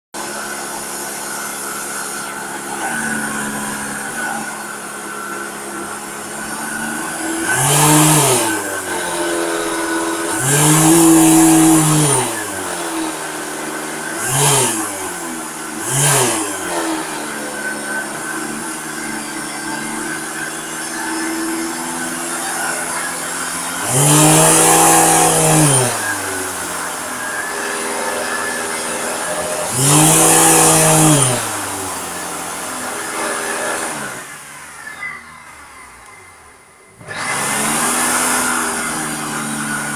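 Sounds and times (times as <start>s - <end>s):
vacuum cleaner motor surging: 0.2s - 35.0s, 36.9s - 39.9s.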